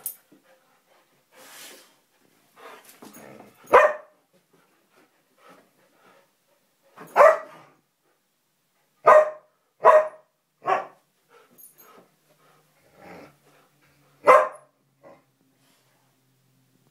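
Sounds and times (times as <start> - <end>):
dogs barking: 3.7 - 4.1, 7.2 - 7.5, 14.2 - 14.7.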